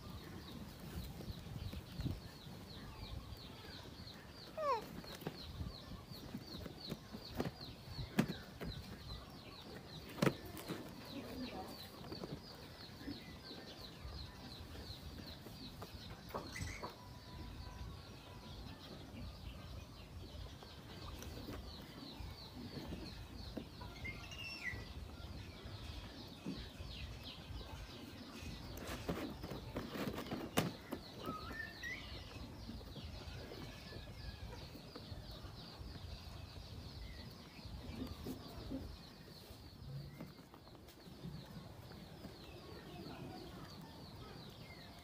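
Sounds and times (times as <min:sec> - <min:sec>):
birds chirping: 0:00.0 - 0:45.0
chickens clucking: 0:24.8 - 0:45.0.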